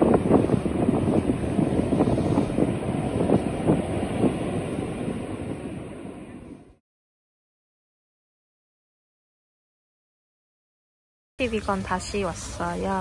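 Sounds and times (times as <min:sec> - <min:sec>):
low rumble: 0:00.0 - 0:06.8
wind buffeting microphone: 0:00.0 - 0:06.8.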